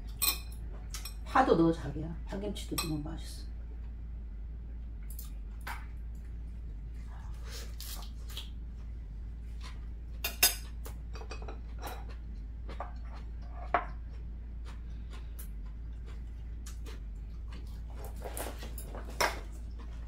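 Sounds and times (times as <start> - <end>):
chopsticks clinking on ceramic bowls: 2.7 - 3.0, 10.2 - 14.0.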